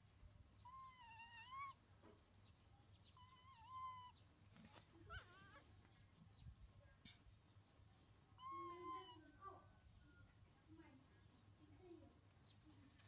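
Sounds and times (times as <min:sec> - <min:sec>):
baby monkey crying: 0:00.6 - 0:01.8, 0:03.2 - 0:04.2, 0:05.1 - 0:05.7, 0:08.4 - 0:09.4.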